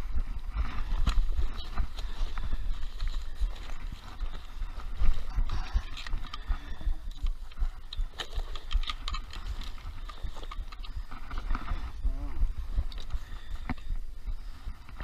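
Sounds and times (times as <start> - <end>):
rustling and clicking of handling: 0.4 - 12.0, 12.7 - 15.0
low rumble on microphone: 9.4 - 15.0.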